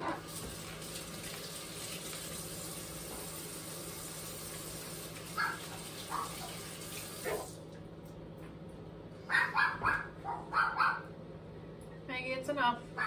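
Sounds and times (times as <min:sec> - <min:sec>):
kitchen tap running: 0:00.0 - 0:07.9
dog barking: 0:05.4 - 0:06.6, 0:09.3 - 0:11.1.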